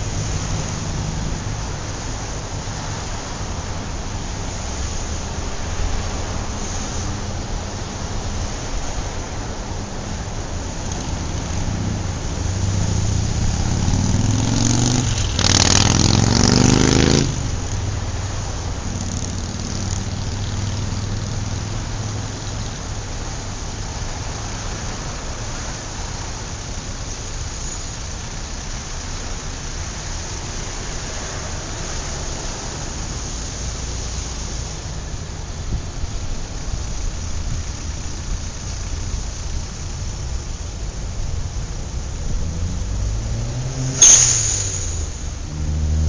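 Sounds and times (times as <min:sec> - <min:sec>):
vehicle passing close: 0:00.0 - 0:25.4, 0:41.1 - 0:46.0
road traffic: 0:00.0 - 0:46.0.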